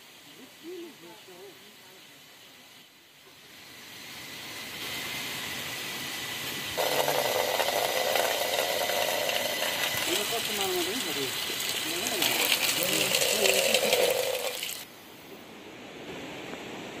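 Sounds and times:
hose water splashing on ground: 2.7 - 14.9.

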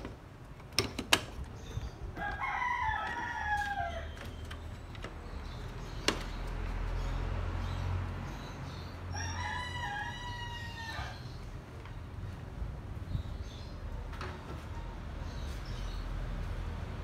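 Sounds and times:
rooster crowing: 2.2 - 4.2, 9.1 - 11.2.

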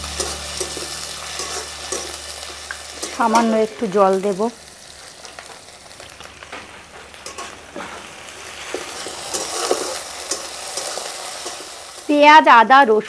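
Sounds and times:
metal spatula scraping pan: 0.0 - 4.0, 7.1 - 11.8
masala sizzling in oil: 0.0 - 13.0.

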